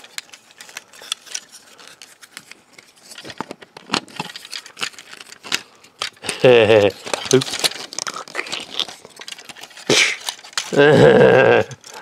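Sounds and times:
plastic toy parts clicking: 0:03.1 - 0:10.8.

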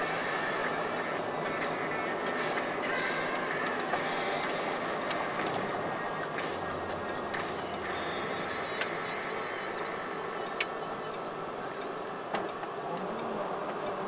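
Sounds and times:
engine and road noise inside vehicle: 0:00.0 - 0:14.0.

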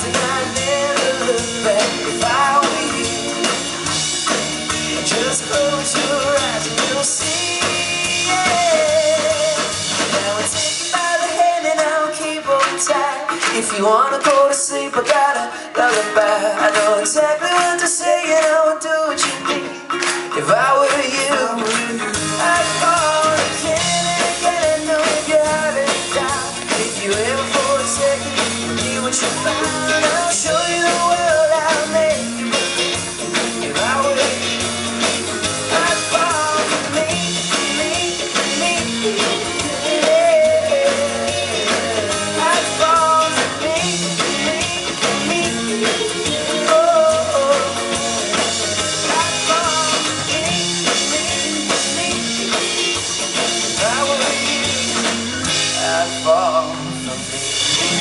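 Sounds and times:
man singing: 0:00.0 - 0:57.3
bass guitar: 0:00.0 - 0:58.0
drum kit: 0:00.0 - 0:58.0
electric guitars: 0:00.0 - 0:58.0.

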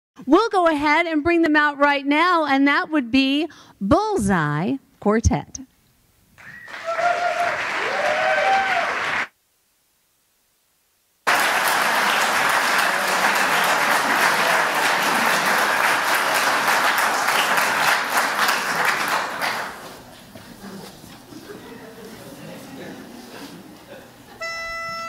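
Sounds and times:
audience applauding: 0:06.4 - 0:09.3, 0:11.2 - 0:20.2.

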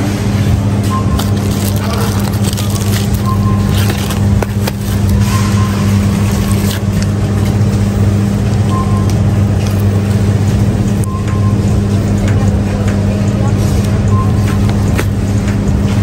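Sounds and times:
freezer case hum: 0:00.0 - 0:16.0
plastic wrap rustling: 0:01.0 - 0:07.2.

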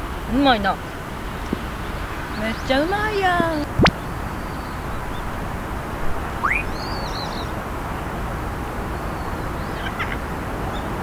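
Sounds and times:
open air background noise: 0:00.0 - 0:11.0
faint bird chirps: 0:00.7 - 0:05.4, 0:06.2 - 0:07.6, 0:08.8 - 0:11.0.

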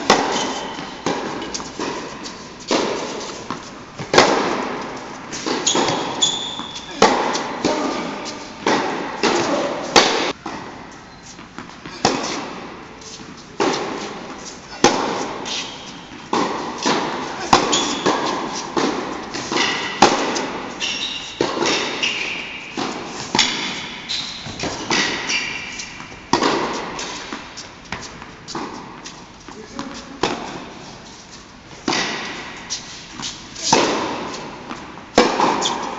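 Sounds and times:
shoe squeaks: 0:00.0 - 0:02.4, 0:05.3 - 0:08.6, 0:11.0 - 0:12.4, 0:15.4 - 0:16.2, 0:17.3 - 0:18.7, 0:20.6 - 0:26.3.

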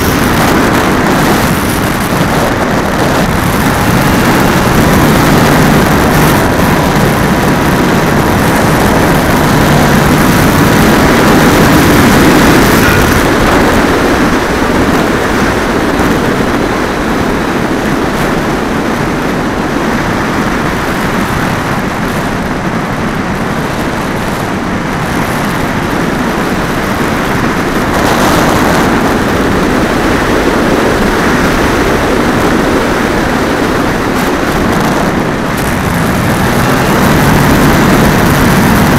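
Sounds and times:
air rushing past: 0:00.0 - 0:17.6.

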